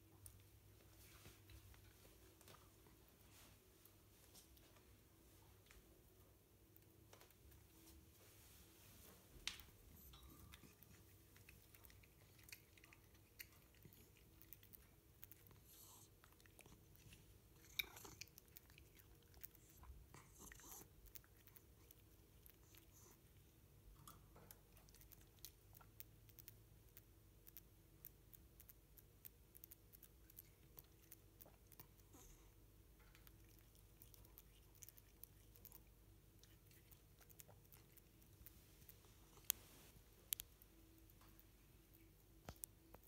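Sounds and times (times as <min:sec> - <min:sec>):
cat nibbling bread: 0:09.5 - 0:43.0.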